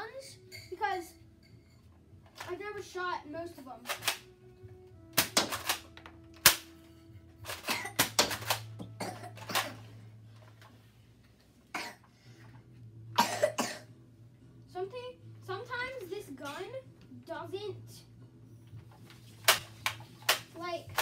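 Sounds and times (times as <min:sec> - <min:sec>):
toy blaster plastic clacks and snaps: 0:03.9 - 0:04.2, 0:19.4 - 0:21.0.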